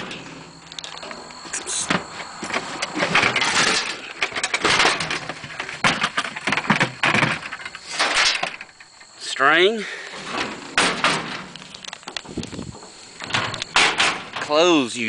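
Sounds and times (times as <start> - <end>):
tools knocking and scraping: 0.0 - 9.1, 12.8 - 14.6
tool bags rustling: 0.0 - 9.2.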